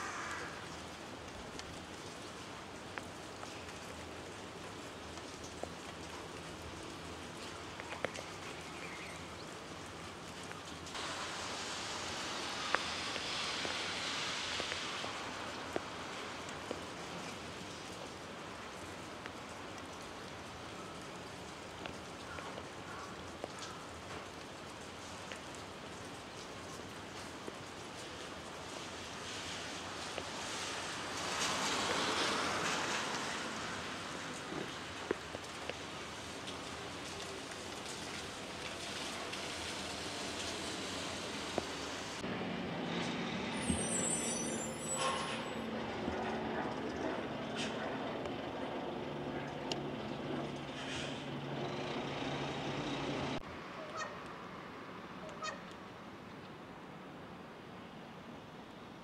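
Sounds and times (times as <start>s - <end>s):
road traffic hum: 0.0s - 23.6s, 28.0s - 59.0s
steady hiss: 0.0s - 42.2s
light rain pattering: 0.0s - 59.0s.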